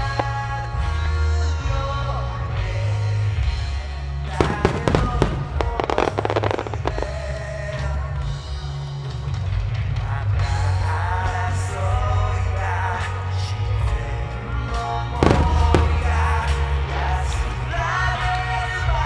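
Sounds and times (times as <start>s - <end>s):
music: 0.0s - 19.0s
fireworks bursting and crackling: 4.3s - 8.2s, 15.2s - 17.0s.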